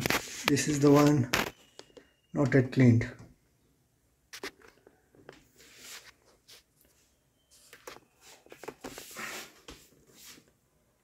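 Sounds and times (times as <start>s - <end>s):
camera handling rustling: 4.3s - 4.9s.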